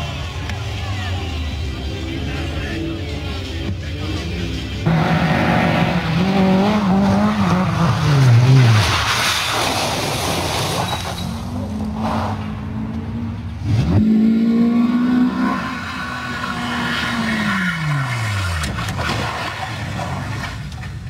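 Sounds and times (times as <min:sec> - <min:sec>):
rally car engine pulling: 0:00.0 - 0:21.0
rally car engine at high revs: 0:02.0 - 0:21.0
tyres on gravel: 0:06.6 - 0:12.5, 0:16.3 - 0:21.0.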